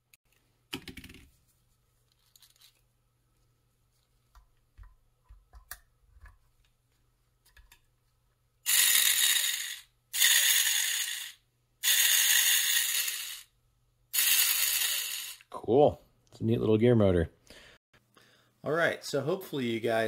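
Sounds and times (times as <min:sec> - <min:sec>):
gear motor whirring: 0:08.7 - 0:13.5, 0:14.2 - 0:15.4.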